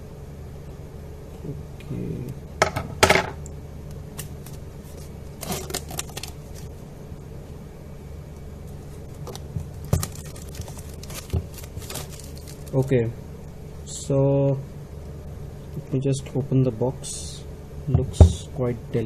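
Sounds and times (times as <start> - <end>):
steady low hum: 0.0 - 19.0
plastic wrap crinkling: 4.2 - 6.7, 8.9 - 12.9.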